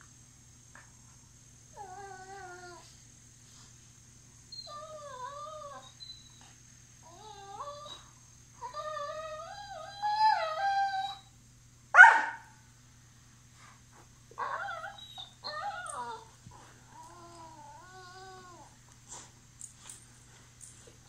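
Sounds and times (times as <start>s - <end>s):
dogs whining: 4.5s - 11.3s, 14.4s - 18.8s.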